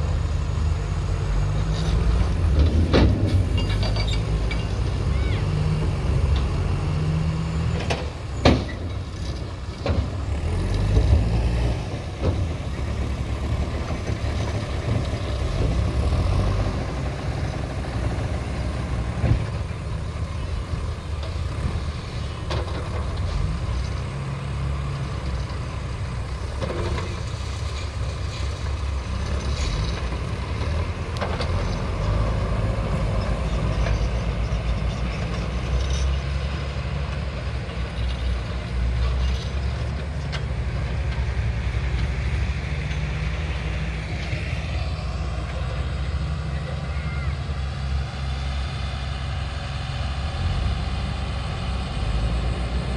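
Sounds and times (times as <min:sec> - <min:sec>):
diesel engines rumbling: 0:00.0 - 0:52.9.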